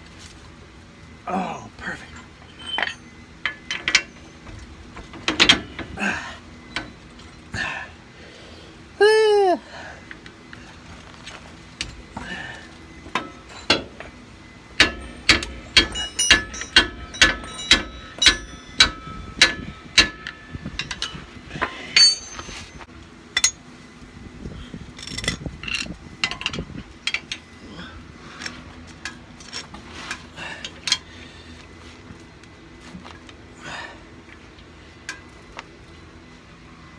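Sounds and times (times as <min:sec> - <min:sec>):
metal-on-metal taps with ring: 0:14.8 - 0:21.1.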